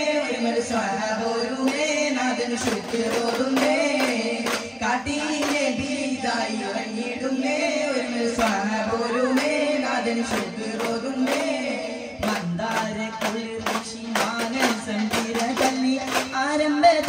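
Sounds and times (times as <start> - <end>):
person singing a melody: 0.0 - 17.0.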